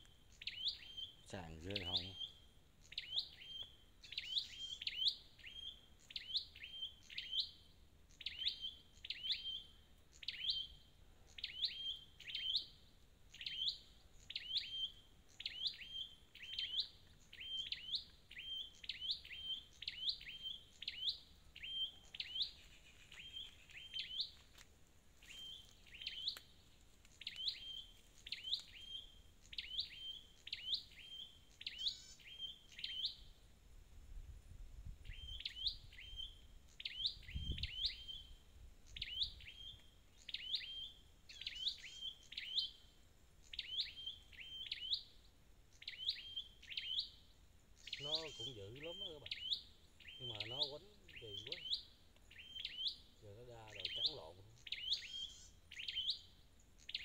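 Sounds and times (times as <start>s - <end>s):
bird calling sharp chips: 25.2s - 30.8s.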